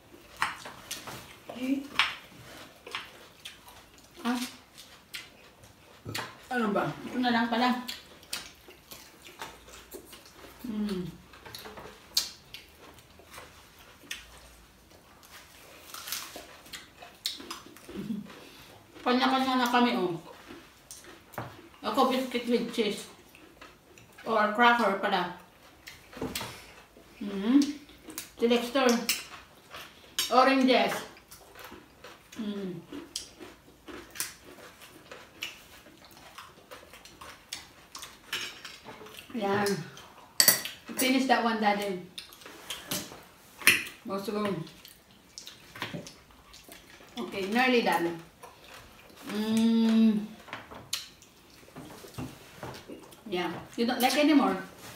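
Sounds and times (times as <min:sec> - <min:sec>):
people chewing: 0:00.0 - 0:41.0, 0:41.6 - 0:54.9
wet mouth smacks and chewing: 0:07.9 - 0:10.6, 0:11.3 - 0:19.0, 0:31.2 - 0:39.3, 0:42.1 - 0:44.0, 0:44.7 - 0:47.2, 0:50.9 - 0:52.2.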